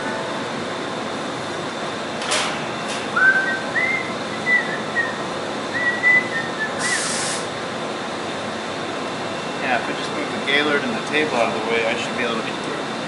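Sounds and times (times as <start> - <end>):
person whistling a tune: 3.2 - 5.2, 5.8 - 7.1
brief hiss: 6.8 - 7.5.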